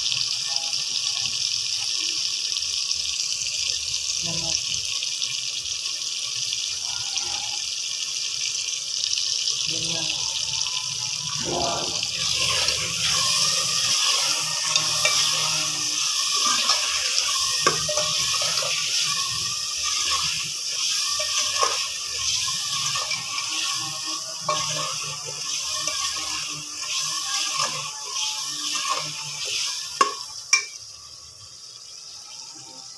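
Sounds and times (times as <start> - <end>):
food sizzling in a pot: 0.0 - 32.9
metal spoon scraping and clinking: 11.4 - 30.8.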